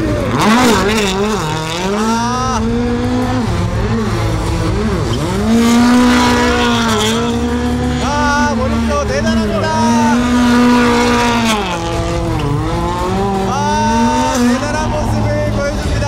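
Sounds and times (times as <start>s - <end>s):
race car engine revving: 0.0s - 16.0s.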